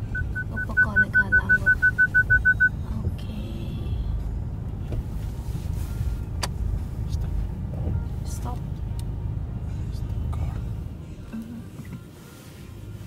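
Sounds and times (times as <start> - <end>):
parking sensor beeping: 0.0 - 2.8
low rumble of car wash machinery: 0.0 - 13.0.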